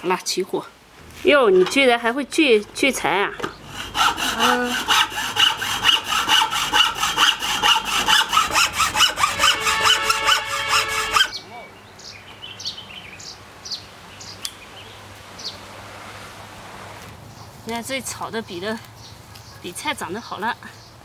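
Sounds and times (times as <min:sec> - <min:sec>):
hacksaw cutting wood: 0:03.3 - 0:11.3.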